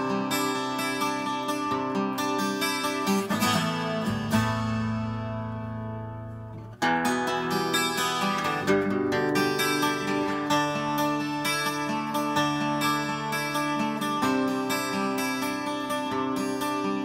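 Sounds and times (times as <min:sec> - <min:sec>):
twelve-string acoustic guitar picking: 0:00.0 - 0:17.0.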